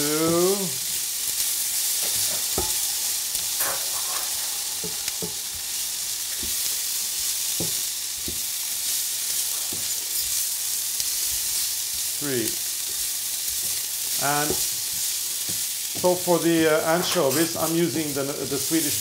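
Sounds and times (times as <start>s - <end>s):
onions sizzling in a pan: 0.0s - 19.0s
utensils clinking and knocking: 2.0s - 5.4s.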